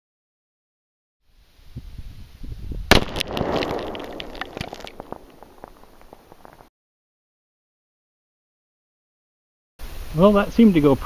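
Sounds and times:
crackling clicks: 2.9s - 6.7s
rifle shot crack: 2.9s - 6.7s.

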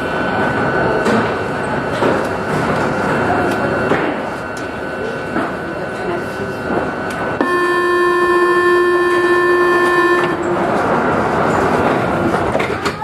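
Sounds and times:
metro train running in tunnel: 0.0s - 13.0s
metro train horn: 7.4s - 11.3s.

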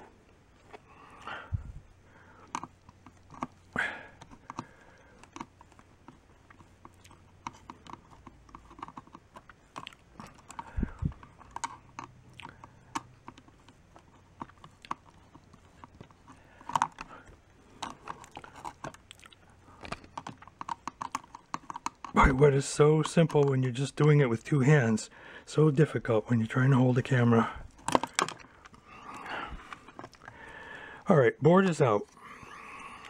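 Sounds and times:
plastic clicks and rattles: 2.4s - 19.2s, 19.8s - 24.2s, 27.7s - 30.4s.

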